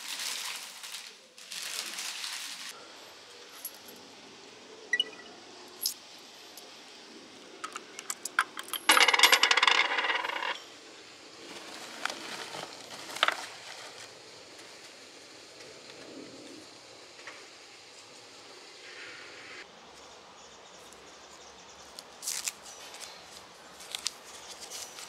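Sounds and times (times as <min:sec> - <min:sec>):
coins clicking in hand: 0:07.7 - 0:10.6
coins clinking into box: 0:08.1 - 0:10.6.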